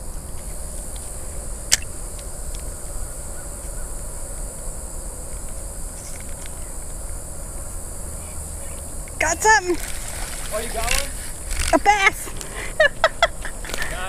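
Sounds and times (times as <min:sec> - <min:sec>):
insects chirping: 0:00.0 - 0:14.0
low steady rumble: 0:00.0 - 0:14.0
sharp click: 0:01.7 - 0:02.6.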